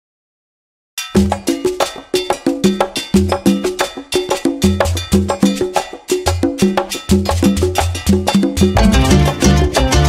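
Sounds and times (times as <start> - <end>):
upbeat background music: 8.4 - 10.0.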